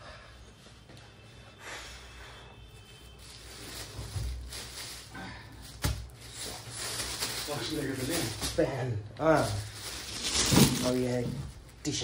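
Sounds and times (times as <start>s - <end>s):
shopping bag rustling: 3.0s - 12.0s.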